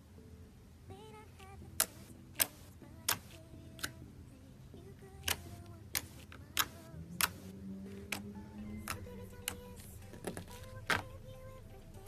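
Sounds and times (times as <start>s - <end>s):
fingers popping slime: 1.8s - 4.0s, 5.2s - 7.5s.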